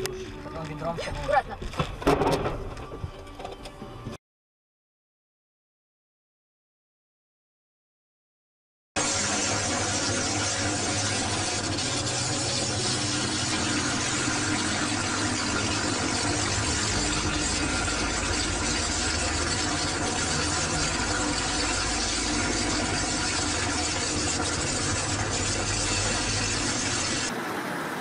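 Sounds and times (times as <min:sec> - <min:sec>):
fire hissing: 0:09.0 - 0:27.3
low hum: 0:09.0 - 0:28.0.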